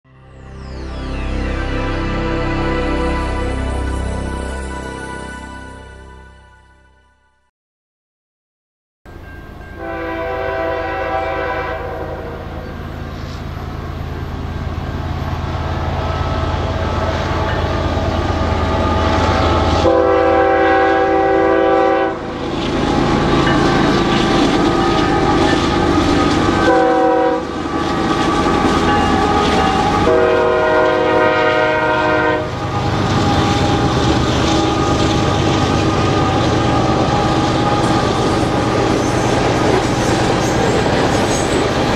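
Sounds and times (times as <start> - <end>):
diesel locomotive engine rumble: 9.1 - 41.9
train horn: 9.8 - 13.4, 15.6 - 41.4.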